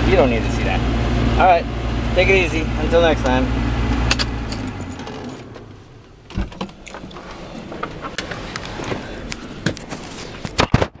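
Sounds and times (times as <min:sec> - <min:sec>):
keys jangling: 0:04.5 - 0:05.4.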